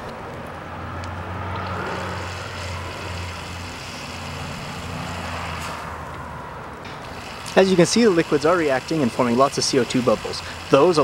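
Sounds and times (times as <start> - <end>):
pumps humming: 0.0 - 11.0
foaming liquid spraying hiss: 1.8 - 6.0, 7.0 - 11.0.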